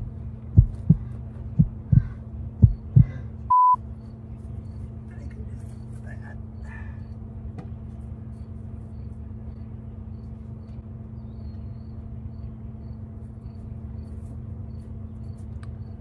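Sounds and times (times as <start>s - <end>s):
low engine hum: 0.0s - 16.0s
faint insect chirping: 8.3s - 16.0s.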